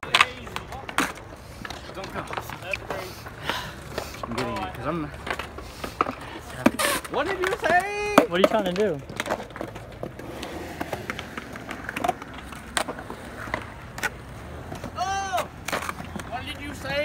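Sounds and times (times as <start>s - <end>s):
skateboard clacks: 0.0s - 17.0s
skateboard wheels rolling on concrete: 0.0s - 17.0s
person calling out: 15.0s - 15.5s.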